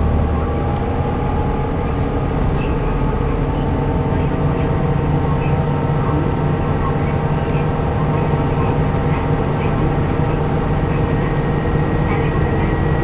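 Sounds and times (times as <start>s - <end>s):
bus engine hum: 0.0s - 13.0s
road noise: 0.0s - 13.0s.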